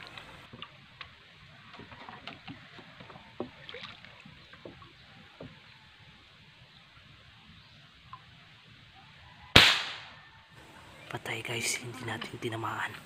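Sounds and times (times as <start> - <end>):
water lapping: 0.0 - 9.4.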